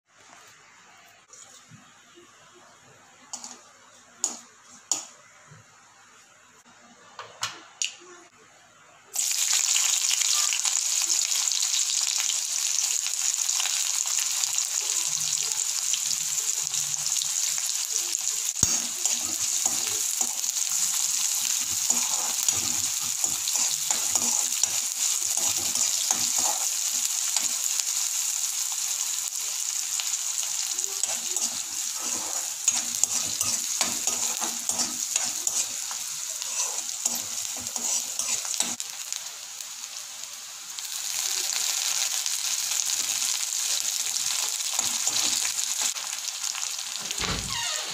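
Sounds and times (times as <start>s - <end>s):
onions sizzling in oil: 3.4s - 5.2s, 9.1s - 47.9s
spatula scraping pan: 18.6s - 27.5s, 31.0s - 38.8s.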